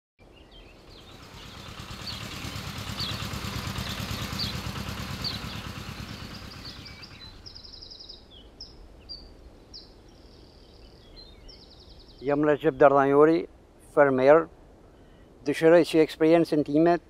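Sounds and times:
birds chirping and trilling: 0.2s - 13.4s
vehicle engine passing by: 0.8s - 7.6s.

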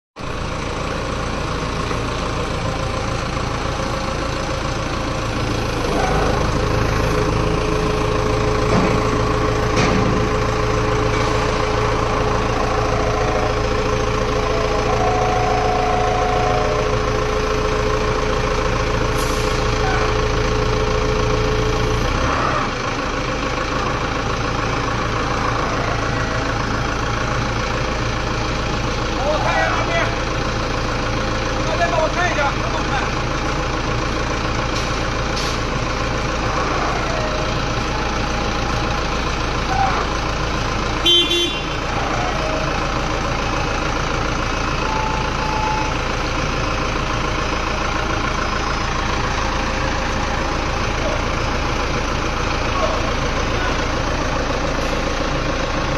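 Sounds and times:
forklift engine running: 0.2s - 55.9s.

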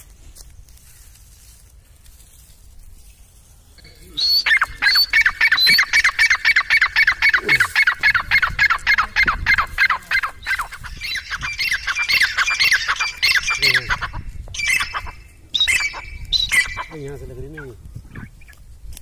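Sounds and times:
bird squawking: 3.8s - 18.6s.

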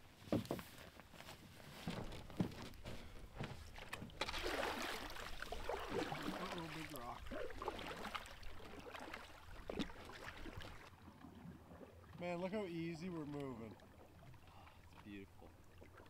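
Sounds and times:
paddle strokes: 0.2s - 16.0s
water splashing: 3.7s - 16.0s.

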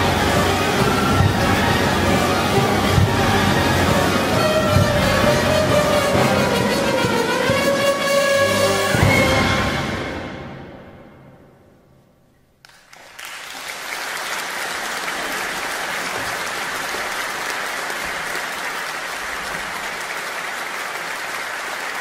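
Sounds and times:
audience applauding: 12.6s - 22.0s.

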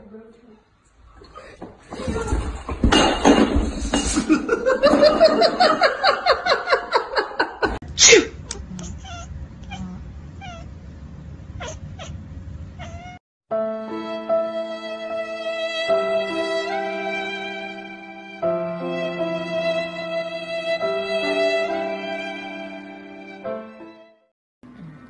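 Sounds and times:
violin-like music: 13.6s - 24.2s.

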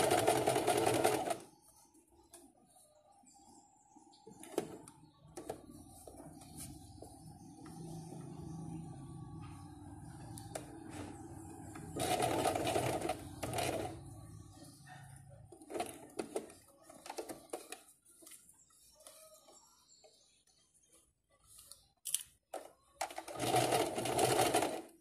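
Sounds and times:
sewing machine stitching: 0.0s - 1.4s, 10.6s - 14.2s, 23.0s - 25.0s.

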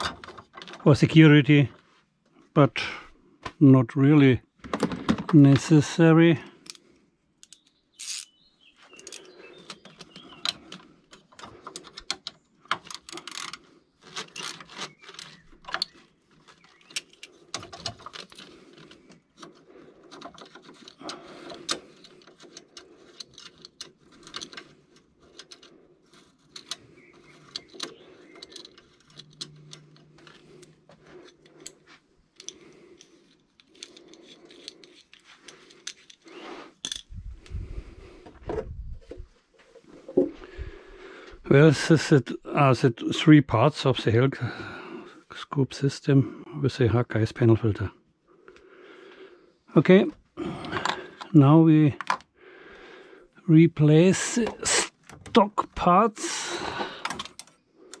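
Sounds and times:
plastic clips clicking and rattling: 9.0s - 31.8s, 56.7s - 58.0s.

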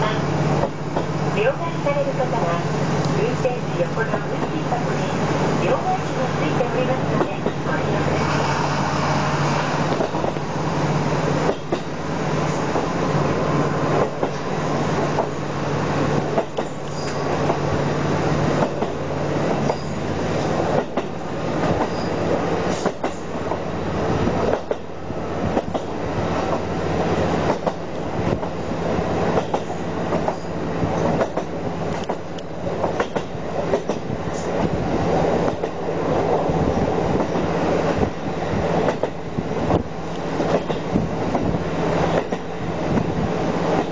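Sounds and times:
train wheels clacking on rail joints: 9.9s - 10.5s, 11.4s - 12.0s, 13.9s - 15.4s, 16.2s - 17.7s, 18.6s - 23.6s, 24.4s - 28.5s, 29.2s - 34.7s, 37.2s - 43.1s.

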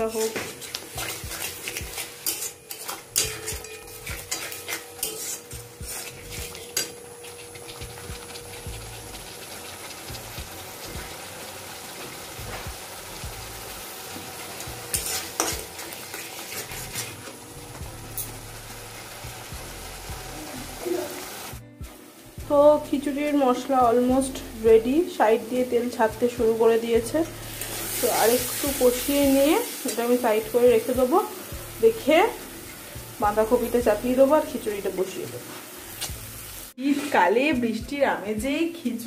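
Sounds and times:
metal spatula scraping metal pan: 0.0s - 8.1s, 14.9s - 17.4s, 27.0s - 31.2s
paste sizzling in oil: 0.0s - 37.8s.

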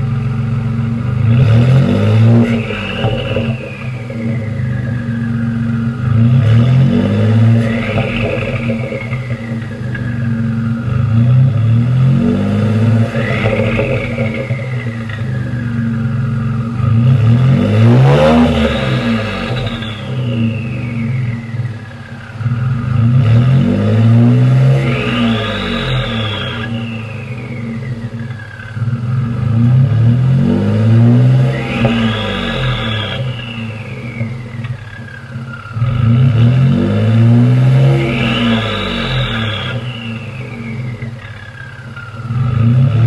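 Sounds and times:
truck engine revving: 0.0s - 43.0s
turbo whistle: 37.8s - 42.5s.

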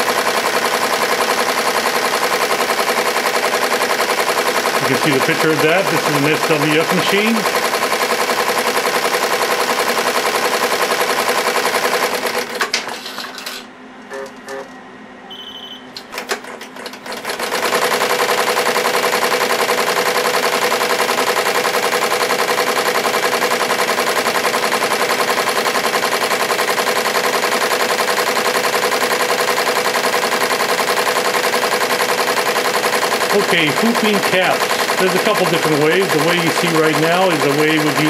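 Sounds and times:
embroidery machine stitching: 0.0s - 13.6s, 16.1s - 38.0s
short high beep: 15.3s - 15.9s.

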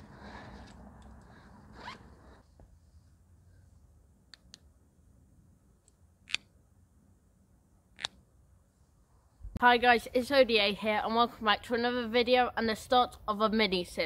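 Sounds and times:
zip pulled open: 0.0s - 2.5s.

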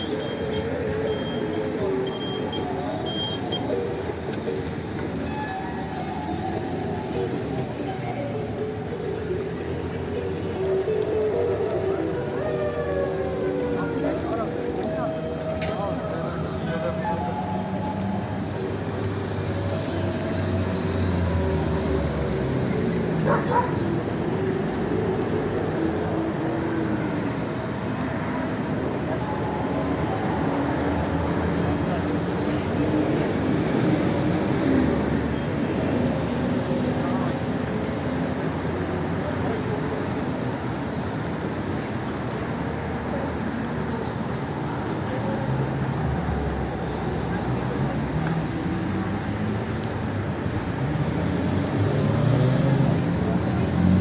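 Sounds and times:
crossing signal beeping: 0.0s - 4.2s
street traffic: 0.0s - 54.0s
voices of passers-by: 0.0s - 54.0s.

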